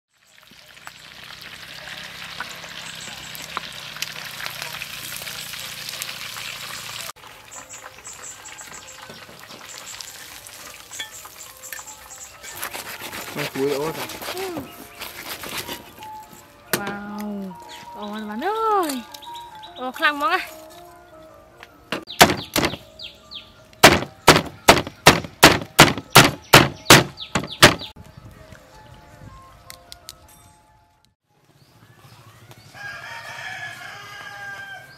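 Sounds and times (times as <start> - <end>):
oil sizzling in a wok: 0.1 - 12.4
cleaver chopping on wooden block: 22.0 - 22.8, 23.8 - 27.9.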